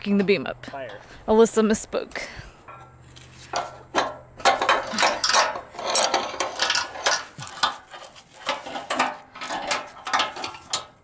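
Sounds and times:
wrench clinking on metal frame: 2.7 - 11.0.

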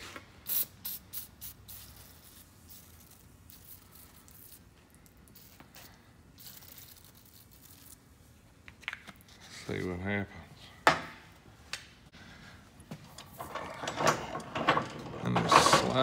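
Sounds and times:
aerosol can spraying: 0.5 - 4.6.

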